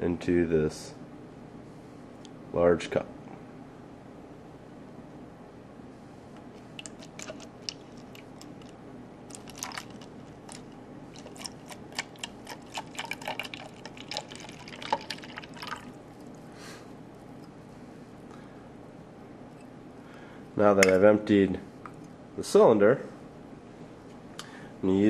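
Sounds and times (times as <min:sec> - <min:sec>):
water dripping and splashing into cup: 0:09.3 - 0:16.3.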